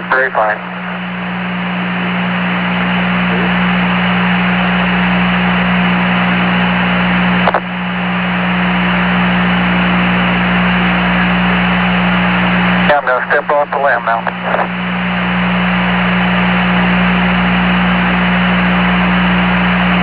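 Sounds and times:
low hum: 0.0 - 20.0
radio static hiss: 0.0 - 20.0
brief click: 7.4 - 7.7.

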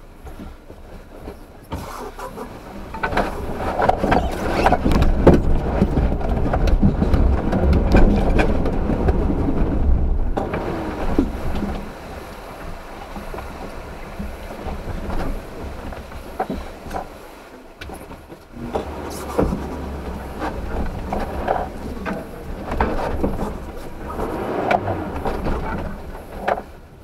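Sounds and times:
engine rumble: 0.0 - 27.0
suspension knocks and clunks: 0.2 - 12.0, 17.8 - 27.0.

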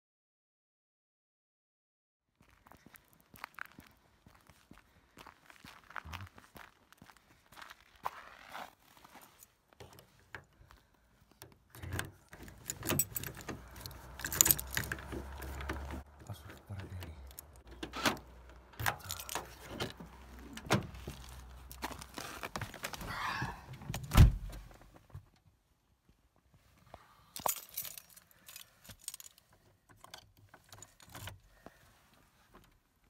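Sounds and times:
handling noises: 8.4 - 25.1, 27.4 - 32.7
car keys jangling in door lock: 11.4 - 21.9, 27.4 - 31.4
car door shutting thud: 23.9 - 24.6.

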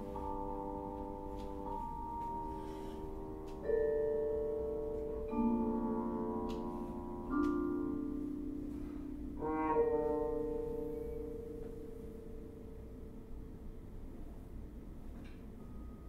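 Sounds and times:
ringing vibraphone tones: 0.0 - 13.2
muted trombone long notes: 5.3 - 12.0.

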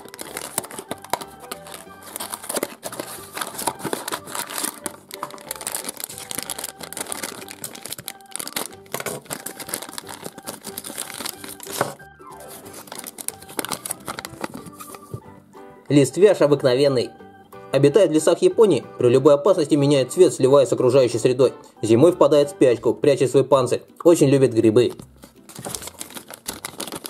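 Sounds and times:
cardboard box tearing: 0.0 - 15.0, 25.5 - 27.0
plastic sachet crinkling and tearing: 0.0 - 15.2, 24.8 - 27.0
light background music: 0.0 - 27.0.

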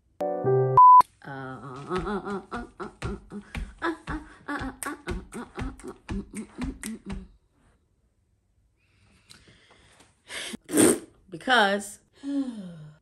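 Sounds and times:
sharp beep: 0.7 - 1.0
rhythmic vocal sounds with clicks: 1.5 - 7.4.

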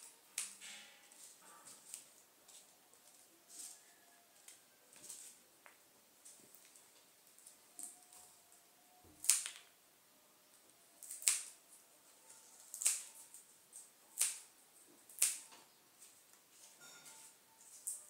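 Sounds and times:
scissors snipping: 12.6 - 13.4, 14.2 - 14.5, 15.1 - 15.5.

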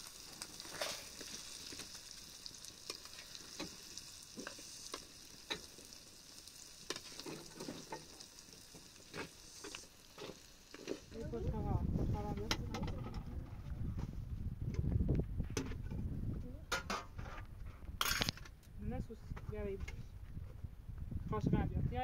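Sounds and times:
food sizzling in a pan: 0.0 - 12.3.

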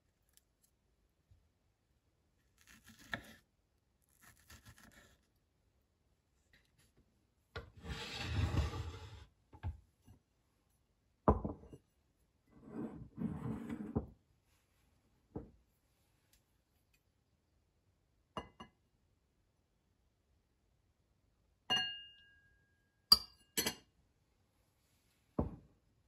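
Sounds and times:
ceramic sliding on wooden table: 7.6 - 9.3, 12.6 - 14.1
ceramic knocking on table: 11.3 - 11.7.

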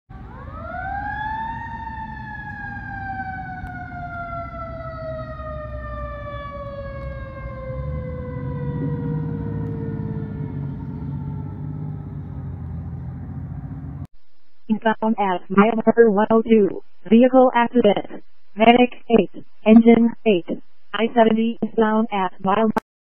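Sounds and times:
fire engine siren wailing: 0.1 - 14.1
low engine rumble: 0.1 - 14.1.

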